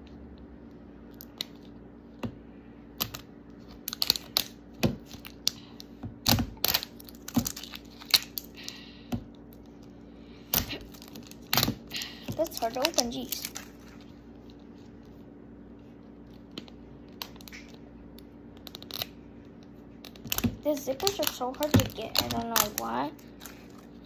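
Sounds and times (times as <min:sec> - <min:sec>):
wrapping tearing: 0:03.0 - 0:05.6, 0:06.6 - 0:08.8, 0:10.6 - 0:14.2, 0:18.6 - 0:19.2, 0:20.0 - 0:24.0
plastic capsule clicks and crinkles: 0:03.0 - 0:05.9, 0:06.6 - 0:08.8, 0:10.6 - 0:14.6, 0:16.3 - 0:24.0.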